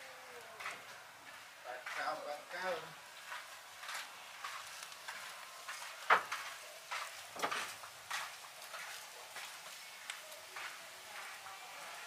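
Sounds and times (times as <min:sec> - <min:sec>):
paws rustling over dry litter: 0:03.2 - 0:12.0.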